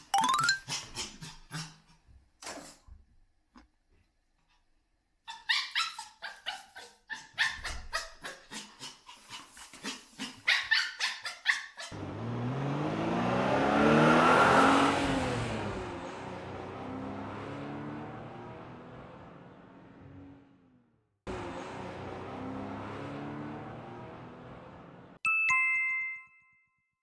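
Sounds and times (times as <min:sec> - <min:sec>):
small dog yapping: 0:05.3 - 0:12.0
car engine and road noise: 0:11.9 - 0:25.2.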